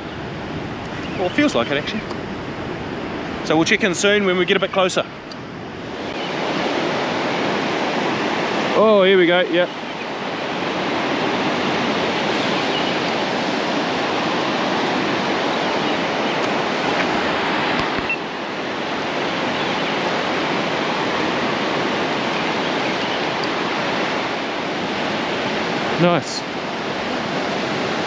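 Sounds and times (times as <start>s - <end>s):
surf breaking on beach: 5.7s - 28.0s.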